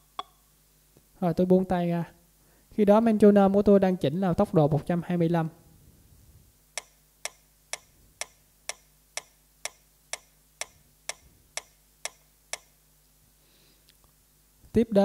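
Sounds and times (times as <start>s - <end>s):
metronome clicking: 0.0s - 0.4s, 6.8s - 12.8s.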